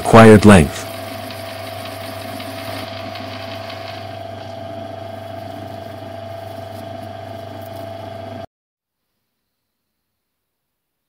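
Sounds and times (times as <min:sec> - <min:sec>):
lathe cutting plastic tubing: 0:00.0 - 0:07.6
lathe gear whine: 0:00.0 - 0:08.5
low motor hum: 0:00.8 - 0:08.5.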